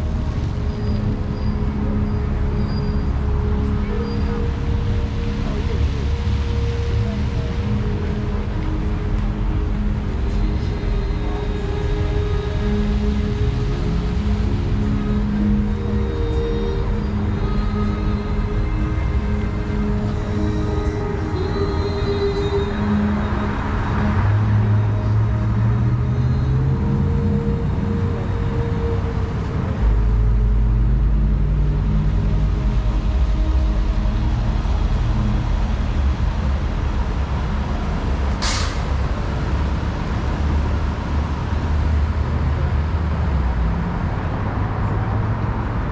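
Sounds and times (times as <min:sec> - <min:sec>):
large vehicle engine rumbling: 0:00.0 - 0:45.9
air brake hiss: 0:38.4 - 0:38.9.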